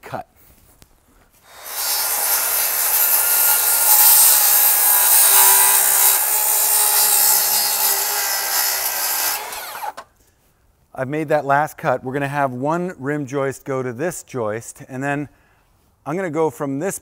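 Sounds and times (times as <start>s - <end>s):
circular saw cutting wood: 1.5s - 10.0s.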